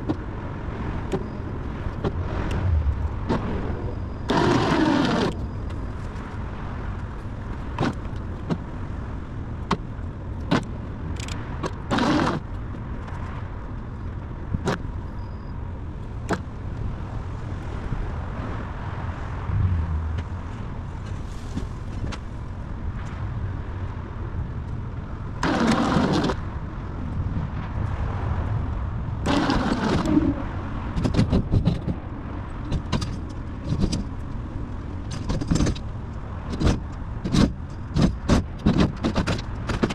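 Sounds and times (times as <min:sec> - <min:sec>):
car scraping on trailer deck: 0:01.9 - 0:05.4, 0:29.3 - 0:31.6.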